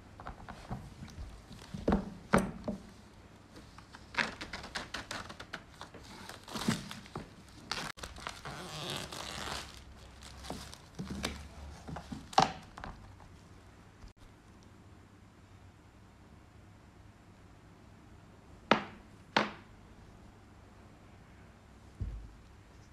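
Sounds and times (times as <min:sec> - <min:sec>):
plastic wrapping crinkling: 0:03.9 - 0:11.6.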